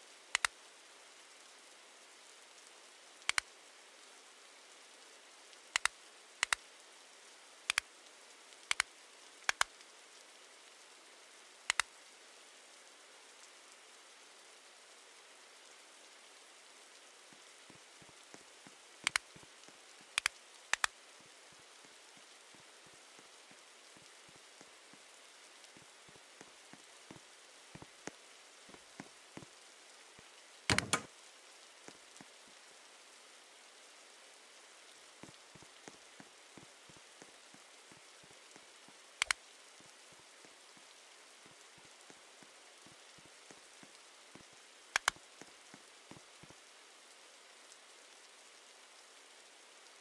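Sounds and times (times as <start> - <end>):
rain pattering: 0.0 - 50.0
sharp double clicks: 30.7 - 31.1, 45.0 - 45.2.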